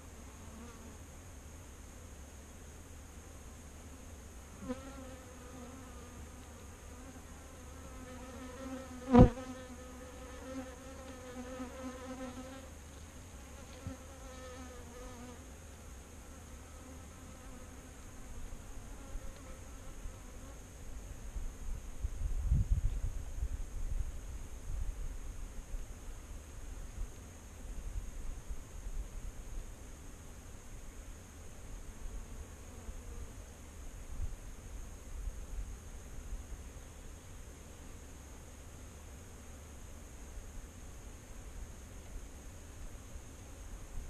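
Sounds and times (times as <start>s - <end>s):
honeybees buzzing: 4.6s - 12.8s.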